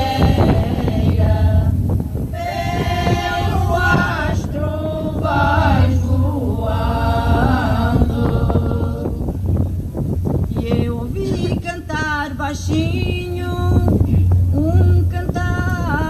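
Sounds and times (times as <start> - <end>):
women's group singing unaccompanied: 0.0 - 9.6.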